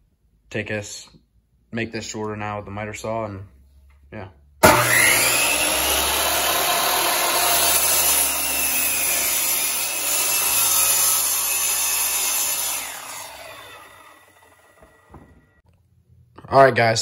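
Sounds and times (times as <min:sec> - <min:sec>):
saw blade winding down: 0:04.6 - 0:15.1
miter saw cutting wood: 0:04.6 - 0:15.6.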